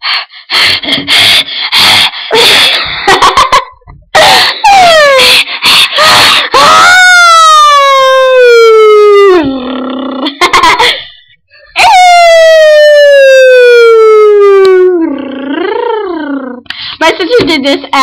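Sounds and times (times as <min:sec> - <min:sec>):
girls shrieking and laughing: 0:02.3 - 0:09.6
long wailing cry: 0:04.2 - 0:10.3, 0:11.8 - 0:16.6.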